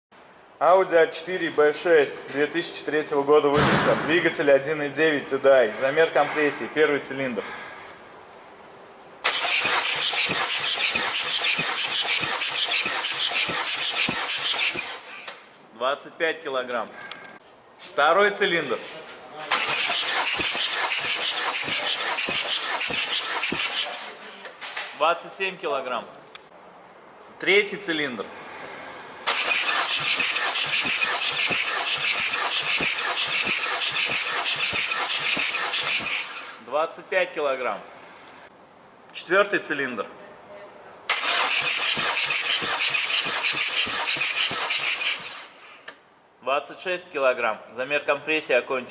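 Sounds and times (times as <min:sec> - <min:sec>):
starter motor cranking diesel engine: 0:09.2 - 0:15.3, 0:19.5 - 0:24.1, 0:29.2 - 0:36.6, 0:41.1 - 0:45.5
loud hiss: 0:19.5 - 0:24.2.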